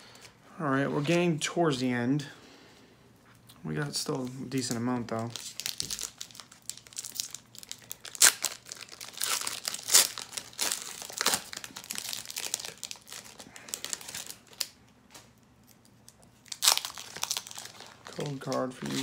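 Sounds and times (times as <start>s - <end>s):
foil wrapper crinkling and tearing: 4.6s - 19.0s.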